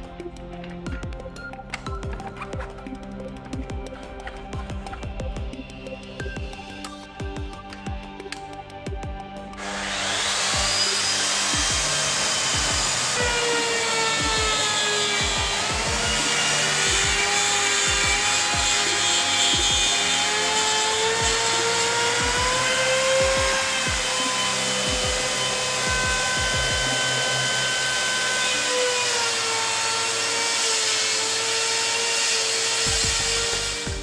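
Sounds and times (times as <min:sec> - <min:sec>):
background music with beat: 0:00.0 - 0:30.2, 0:32.4 - 0:34.0
cutter motor whine: 0:09.6 - 0:34.0.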